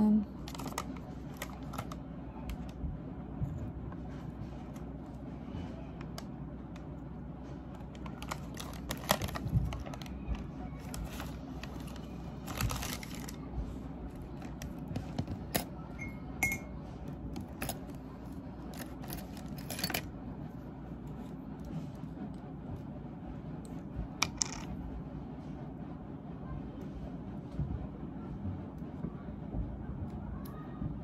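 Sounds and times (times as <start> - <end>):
foil packet crinkling: 8.0 - 13.4.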